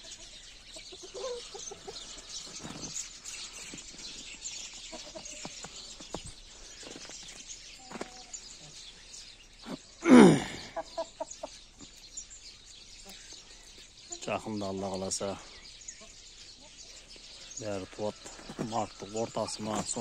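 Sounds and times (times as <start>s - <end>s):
chicken clucking: 0.0s - 4.0s, 4.7s - 6.1s, 10.6s - 12.0s
small birds chirping: 0.0s - 20.0s.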